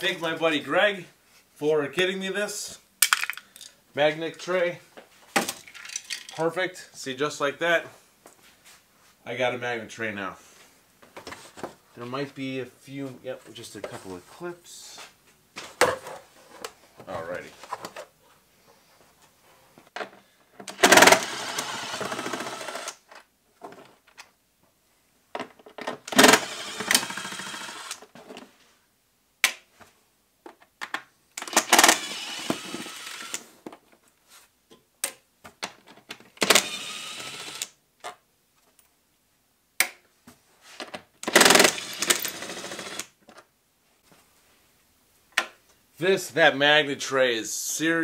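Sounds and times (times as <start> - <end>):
cordless power tool running: 20.8 - 23.0, 26.1 - 28.0, 31.6 - 33.4, 36.4 - 37.6, 41.3 - 43.0.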